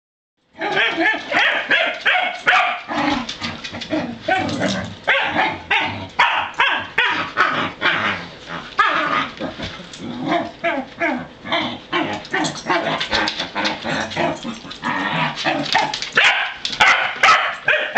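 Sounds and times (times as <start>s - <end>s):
dog barking and yipping: 0.6s - 3.2s, 5.1s - 7.6s, 15.6s - 17.9s
dog whining and grumbling: 7.1s - 15.9s.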